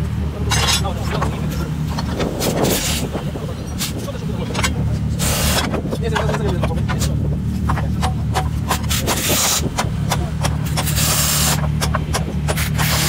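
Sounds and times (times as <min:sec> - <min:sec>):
low engine hum: 0:00.0 - 0:13.0
tool scraping: 0:00.5 - 0:13.0
short hiss bursts: 0:10.9 - 0:11.6.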